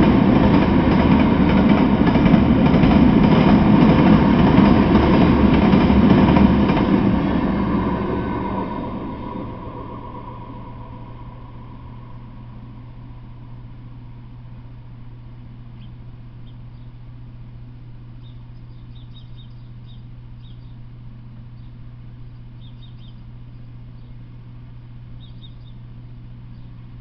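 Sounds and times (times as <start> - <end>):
steady low hum: 0.0 - 27.0
small bird chirping: 15.7 - 17.0, 18.1 - 20.9, 21.5 - 24.2, 25.1 - 25.9, 26.5 - 26.8.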